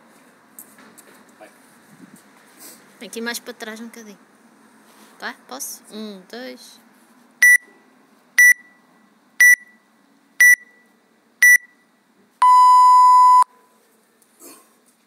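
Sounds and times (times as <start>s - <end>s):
long lower beep: 9.4s - 9.8s, 10.4s - 10.8s, 11.4s - 11.8s, 12.4s - 13.5s
short high beeps: 11.4s - 11.8s, 12.4s - 13.5s.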